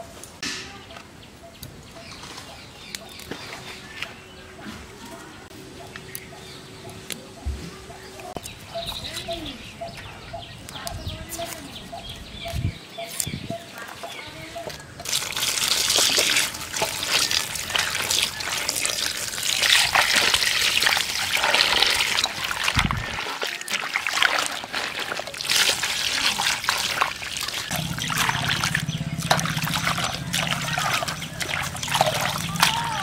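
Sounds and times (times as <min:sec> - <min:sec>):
water pouring and splashing: 0:15.0 - 0:33.0
low steady hum: 0:27.7 - 0:33.0.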